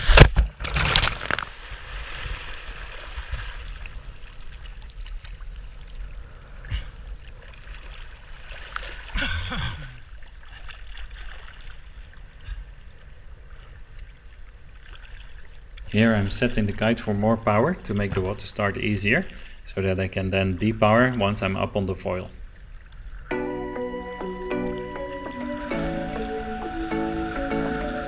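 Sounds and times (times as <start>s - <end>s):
water sloshing and trickling: 0.6s - 19.5s.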